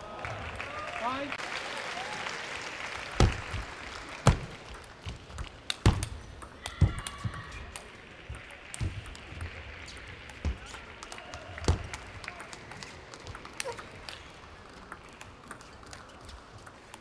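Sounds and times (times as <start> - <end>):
table tennis ball ticking: 5.0 - 17.0.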